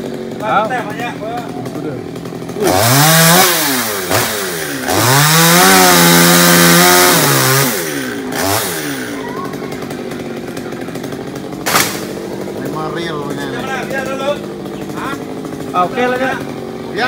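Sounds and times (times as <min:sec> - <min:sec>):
chainsaw revving and idling: 0:00.0 - 0:17.0.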